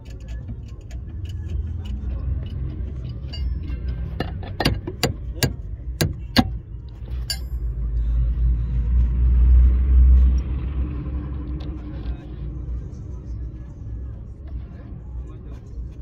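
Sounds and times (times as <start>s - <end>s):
steady low rumble: 1.8s - 16.0s
sharp metal knocks: 3.2s - 6.6s, 7.3s - 7.7s.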